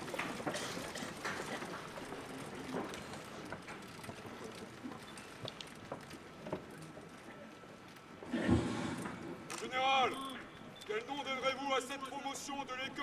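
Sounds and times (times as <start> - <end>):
open-air hush: 8.2 - 13.0.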